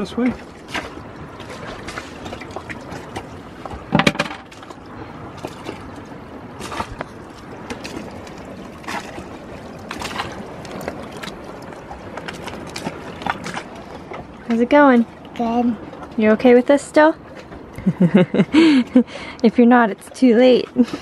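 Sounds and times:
knock: 0:04.0 - 0:04.4.

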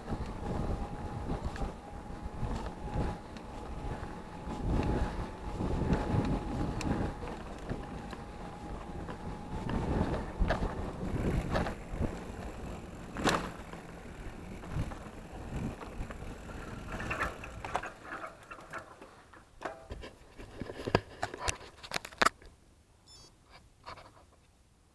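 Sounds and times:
wind on microphone: 0:00.0 - 0:17.9
bike chain and frame rattling: 0:00.0 - 0:20.8
bike tyres on gravel: 0:00.0 - 0:21.9.

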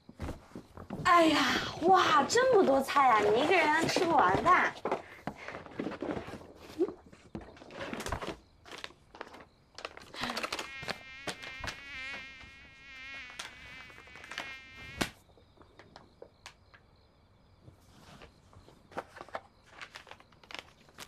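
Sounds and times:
mosquito whining: 0:10.3 - 0:15.2.

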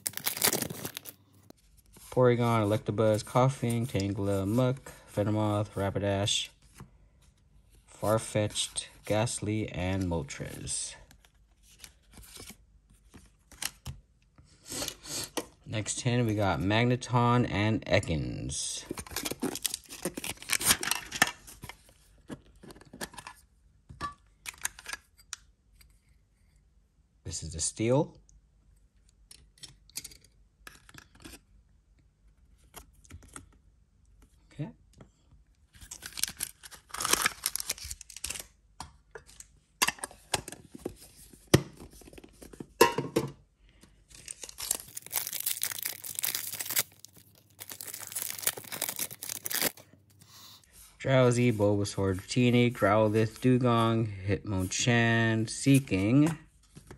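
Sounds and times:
shrink wrap crackling and tearing: 0:00.0 - 0:01.2, 0:35.8 - 0:38.5, 0:44.1 - 0:49.9.

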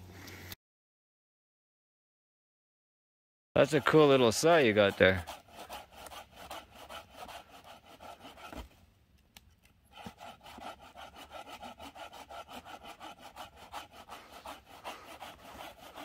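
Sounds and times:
hand saw cutting wood: 0:03.6 - 0:08.7, 0:09.9 - 0:16.0.

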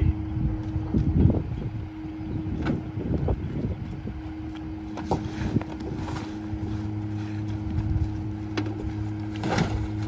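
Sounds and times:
garbage truck humming: 0:00.0 - 0:10.0.

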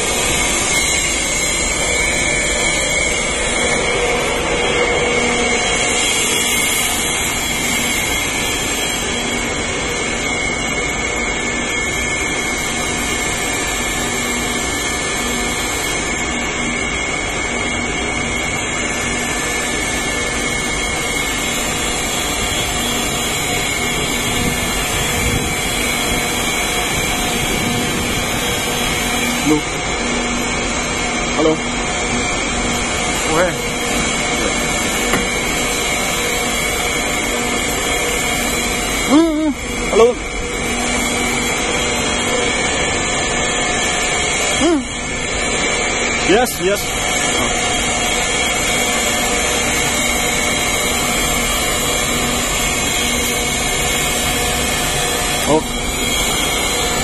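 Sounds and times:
high whine over low hum: 0:00.0 - 0:57.0
machinery noise from motors and fans: 0:00.0 - 0:57.0.

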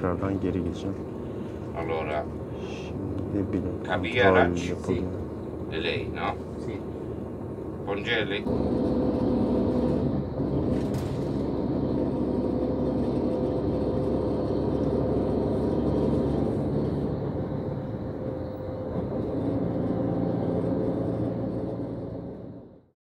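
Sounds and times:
steady hum: 0:00.0 - 0:22.8
engine and tyre drone: 0:00.0 - 0:22.9.

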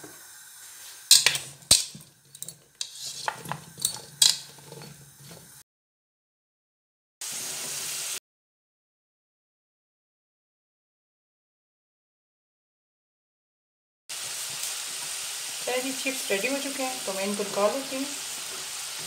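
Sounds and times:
oil sizzling: 0:00.0 - 0:05.6, 0:07.2 - 0:08.2, 0:14.1 - 0:19.0
tongs scraping a ceramic bowl: 0:01.1 - 0:05.6.

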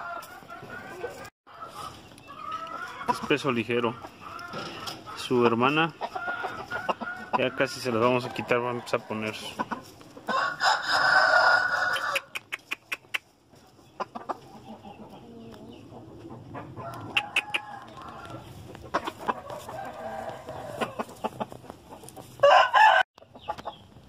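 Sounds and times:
chickens clucking softly: 0:00.0 - 0:10.4, 0:12.0 - 0:22.4, 0:23.2 - 0:24.0
rooster crowing: 0:10.3 - 0:12.4, 0:16.8 - 0:18.4, 0:19.5 - 0:21.0, 0:22.4 - 0:23.0.

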